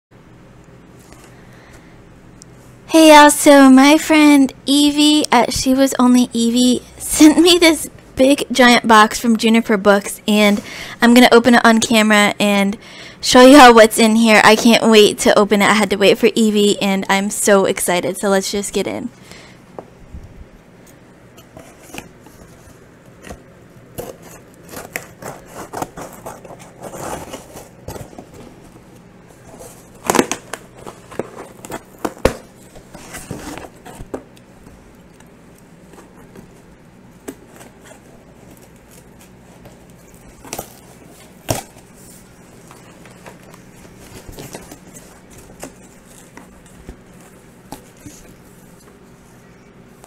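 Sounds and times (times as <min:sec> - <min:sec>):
cardboard flaps scraping: 0:21.4 - 0:34.3, 0:35.8 - 0:49.3
scissors cutting packing tape: 0:23.9 - 0:28.2.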